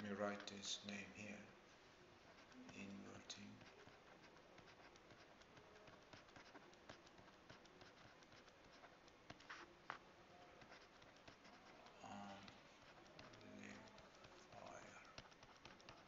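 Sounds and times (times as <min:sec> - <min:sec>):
stylus tapping on a tablet: 0:10.6 - 0:16.0.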